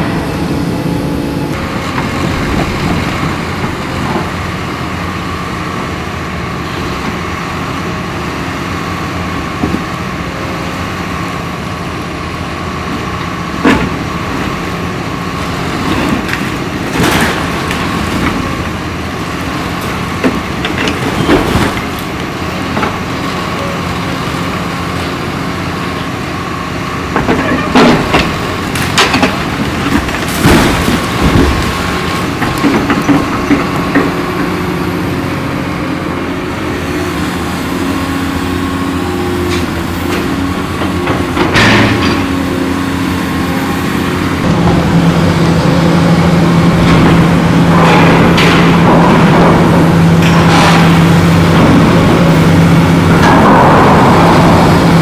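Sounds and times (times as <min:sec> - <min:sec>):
excavator engine humming: 0:00.0 - 0:55.0
debris crashing down: 0:13.9 - 0:23.2, 0:27.1 - 0:34.8, 0:45.8 - 0:55.0.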